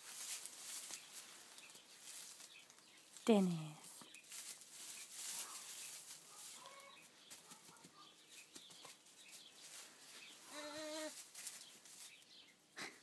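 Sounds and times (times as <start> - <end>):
rustling in straw bedding: 0.0 - 7.6, 8.3 - 12.4
faint lamb calls: 10.4 - 11.2.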